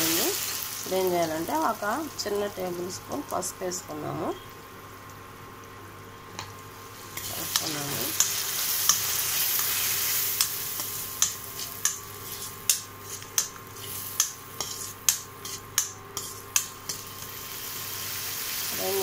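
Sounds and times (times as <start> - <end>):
food sizzling in oil: 0.0 - 4.9, 6.4 - 19.0
metal spoon scraping pan: 10.3 - 17.3.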